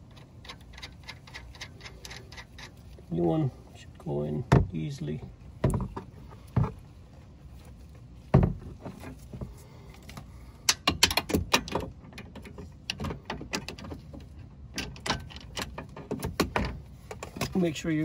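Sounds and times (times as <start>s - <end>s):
wrench clicking on a nut: 0.0s - 2.8s.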